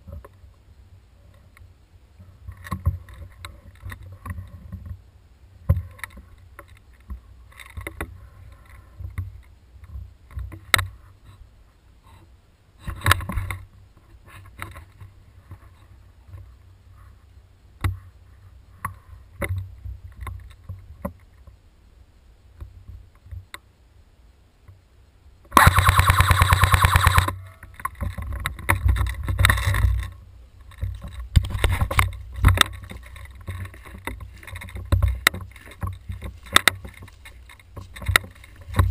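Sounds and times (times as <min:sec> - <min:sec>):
airsoft rifle full-auto burst: 0:25.6 - 0:27.3
rustling and thumping in undergrowth: 0:27.8 - 0:38.9.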